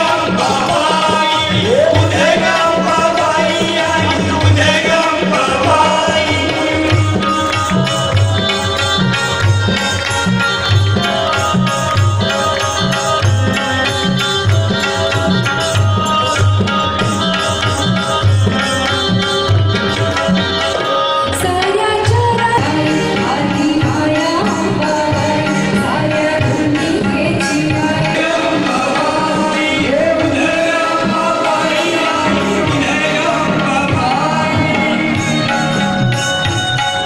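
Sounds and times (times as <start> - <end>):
person singing: 0.0 - 7.5, 21.2 - 35.8
electric keyboard melody: 0.0 - 37.0
hand drums beat: 0.0 - 37.0.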